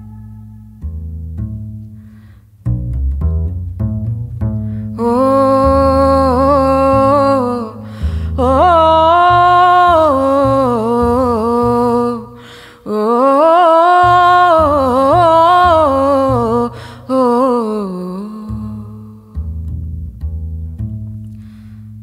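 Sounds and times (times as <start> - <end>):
double bass low notes: 0.0 - 22.0
woman singing wordless melody: 4.9 - 19.5.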